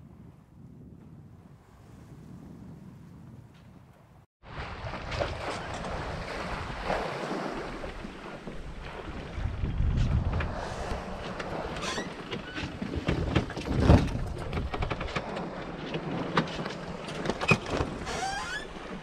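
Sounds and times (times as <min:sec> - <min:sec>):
knocks and creaks aboard sailboat: 0:00.2 - 0:19.0
short squeak: 0:18.0 - 0:18.7.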